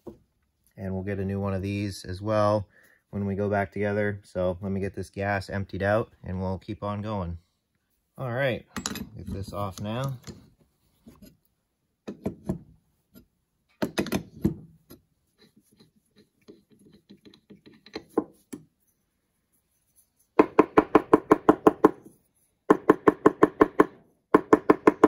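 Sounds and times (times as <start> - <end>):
clicks and clunks of parts: 8.7 - 10.5.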